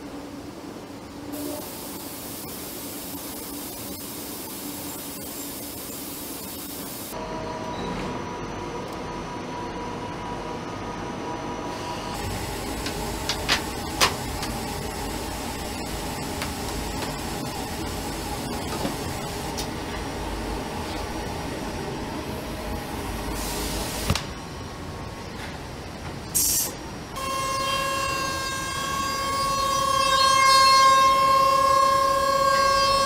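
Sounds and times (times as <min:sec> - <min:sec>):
mechanical hum: 0:00.0 - 0:33.0
burst of hiss: 0:01.4 - 0:07.2, 0:26.3 - 0:26.8.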